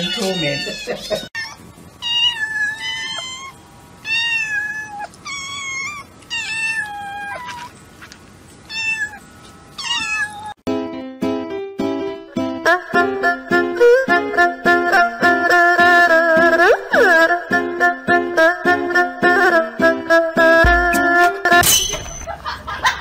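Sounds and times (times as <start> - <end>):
kittens meowing: 0.0 - 7.7, 8.7 - 9.2, 9.8 - 10.6
plucked background music: 10.7 - 22.2.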